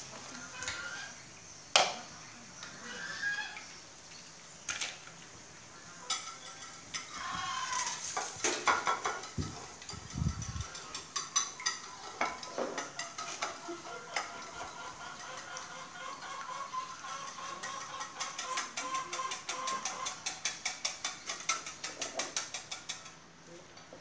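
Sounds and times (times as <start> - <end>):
metal utensils clinking on dishes: 6.0 - 16.3, 17.0 - 23.2
eggs beaten on ceramic plate: 6.2 - 23.2.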